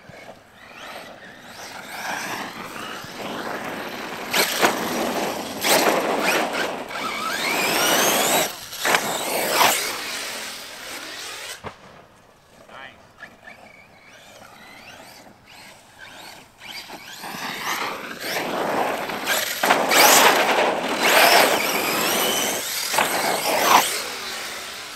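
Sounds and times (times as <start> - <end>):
rc truck motor whine: 0.0 - 11.6, 13.2 - 24.9
tyres scrabbling: 13.2 - 24.9.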